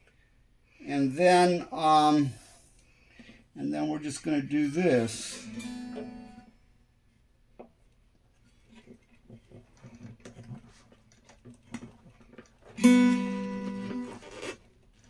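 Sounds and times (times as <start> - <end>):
open guitar strings ringing: 5.3 - 6.5, 12.8 - 14.2
scrapes taps and clicks on guitar: 5.6 - 6.3, 8.7 - 14.6.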